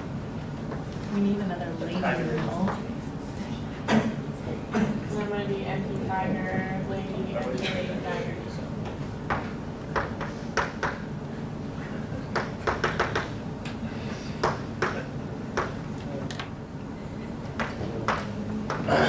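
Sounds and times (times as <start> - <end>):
steady low hum: 0.0 - 19.0
chalk tapping on chalkboard: 9.3 - 11.0, 12.3 - 13.4, 14.4 - 15.0.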